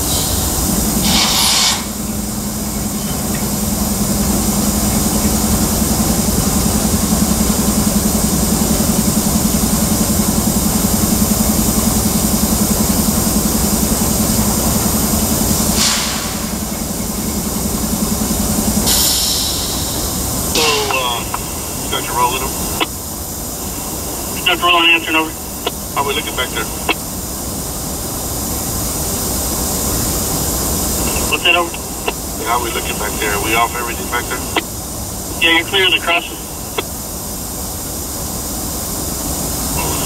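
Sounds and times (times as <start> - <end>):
brief hissing burst: 0.0 - 2.0, 15.7 - 16.6, 18.9 - 21.2
train wheels rumbling on rail: 0.0 - 40.0.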